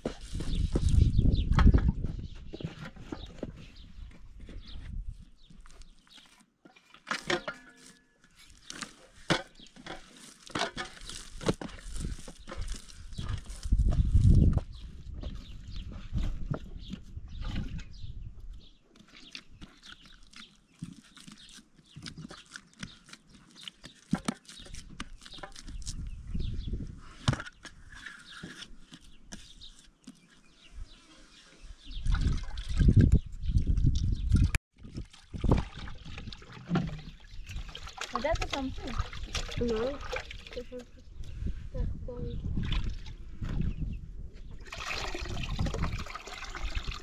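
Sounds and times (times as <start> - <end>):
water sloshing: 34.4 - 41.0
water pouring into metal pot: 44.6 - 47.0.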